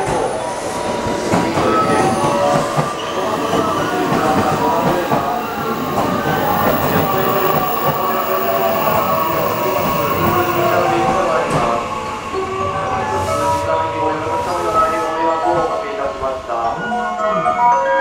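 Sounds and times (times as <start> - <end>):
train wheels clattering on rails: 0.0 - 11.8.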